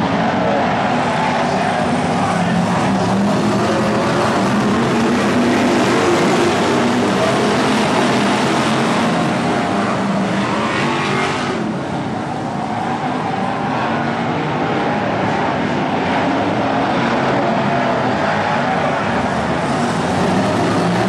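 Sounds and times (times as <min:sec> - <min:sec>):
racing car engines: 0:00.0 - 0:21.0.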